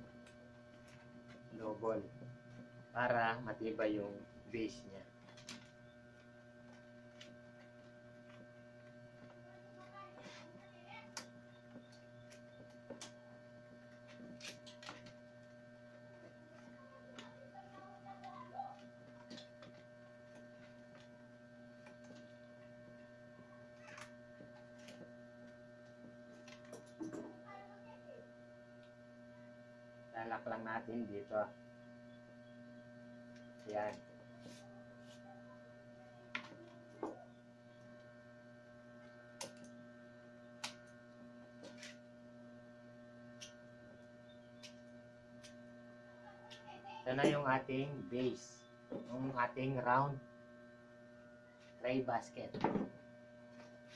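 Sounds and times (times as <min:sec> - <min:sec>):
electrical hum: 0:00.0 - 0:53.9
wicker being woven: 0:04.7 - 0:27.3, 0:41.6 - 0:42.1.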